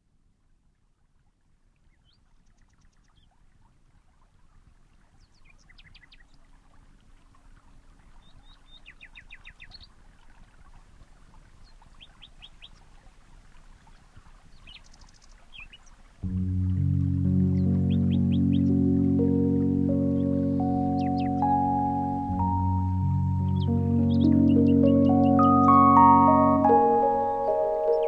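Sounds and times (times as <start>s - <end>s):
faint outdoor background noise: 0.0s - 28.0s
small birds chirping: 14.5s - 28.0s
loud music: 16.3s - 28.0s.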